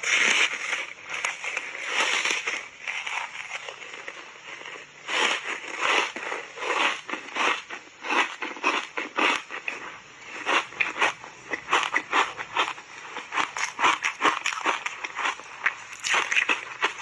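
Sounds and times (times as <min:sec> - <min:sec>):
chewing crunchy food: 0:00.0 - 0:17.0.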